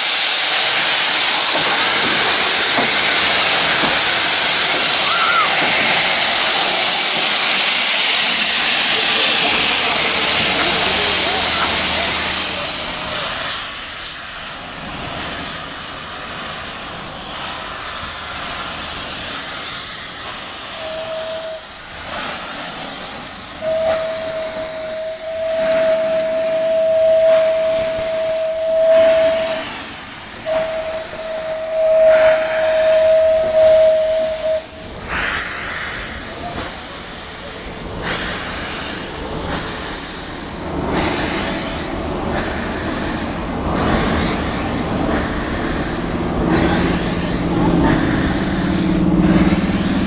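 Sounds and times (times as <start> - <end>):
steam whistle blasts: 0.0 - 13.6, 20.5 - 22.7, 23.5 - 36.7, 41.2 - 50.0
steam locomotive hissing steam: 0.0 - 50.0.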